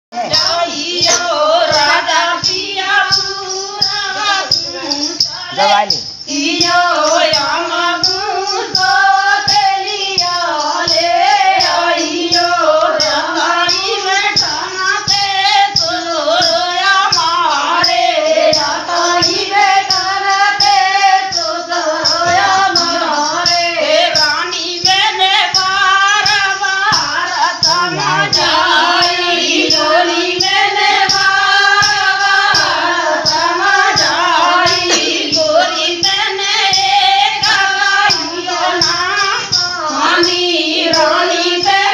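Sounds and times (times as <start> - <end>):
steady percussion beat: 0.1 - 41.9
women singing in chorus: 0.2 - 41.9.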